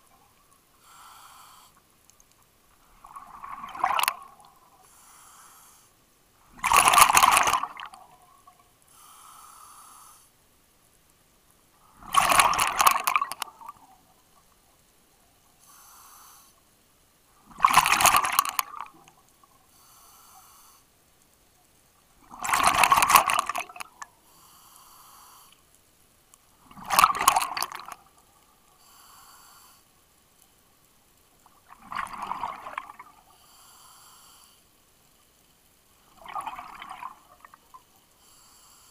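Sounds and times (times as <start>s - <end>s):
regulator inhalation hiss: 0.8s - 1.8s, 4.8s - 6.0s, 8.9s - 10.3s, 15.6s - 16.6s, 19.7s - 20.9s, 24.3s - 25.6s, 28.8s - 29.9s, 33.3s - 34.7s, 38.2s - 38.9s
exhaled bubbles rushing underwater: 3.0s - 4.7s, 6.5s - 8.4s, 12.0s - 13.9s, 26.7s - 28.1s, 31.6s - 33.2s, 36.2s - 37.5s.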